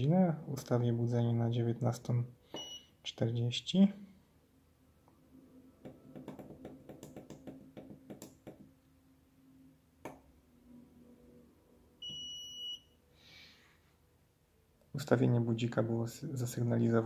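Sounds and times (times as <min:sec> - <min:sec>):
high buzzer beep: 0:02.6 - 0:02.9, 0:12.0 - 0:13.0.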